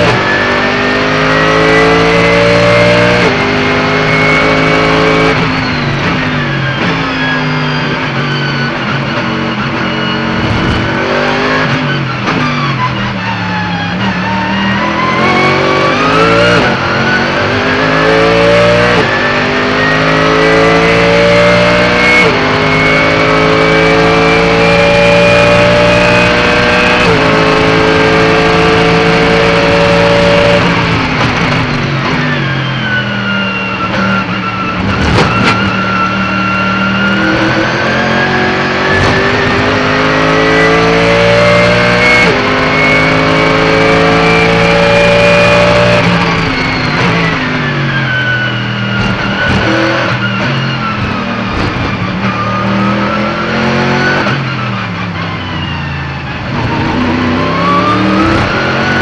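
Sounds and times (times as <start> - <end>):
race car engine accelerating: 0.0 - 59.0
high whine: 2.2 - 14.0.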